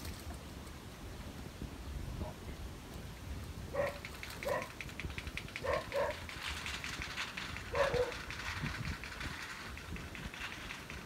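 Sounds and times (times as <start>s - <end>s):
faint rapid ticking: 4.0s - 11.0s.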